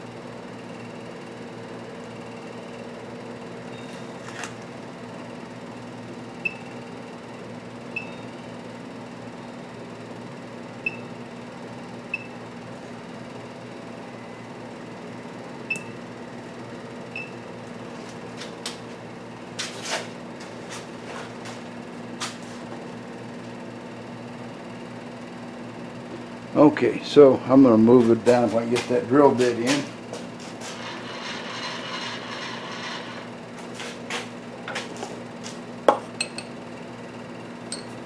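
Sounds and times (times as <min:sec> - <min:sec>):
machinery hum: 0:12.1 - 0:38.0.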